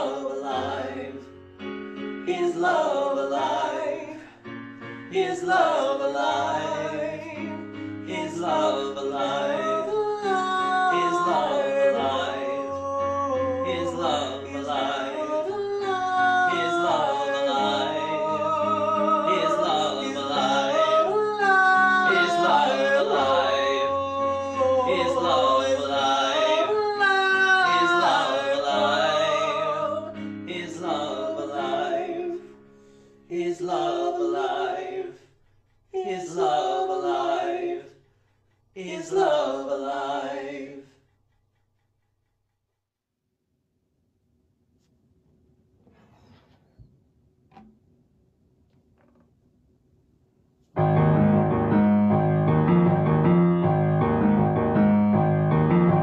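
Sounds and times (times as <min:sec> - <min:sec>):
two men singing a ballad: 0:00.0 - 0:01.4, 0:02.0 - 0:35.2, 0:36.0 - 0:38.0, 0:38.8 - 0:40.9.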